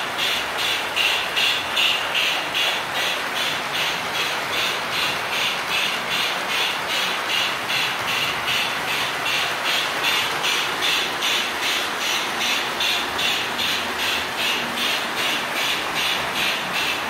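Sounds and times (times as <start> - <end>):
model train rumbling on track: 0.0 - 17.0
rhythmic hissing pulse: 0.0 - 17.0.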